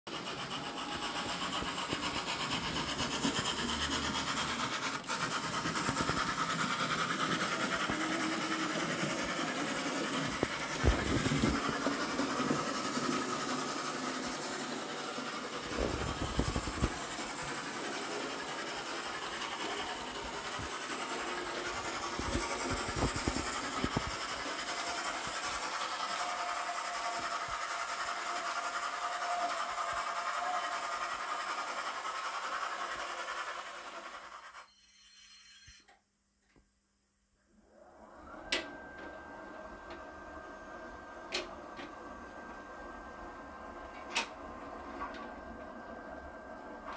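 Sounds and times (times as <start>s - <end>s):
model train motor whirring: 0.1s - 35.9s.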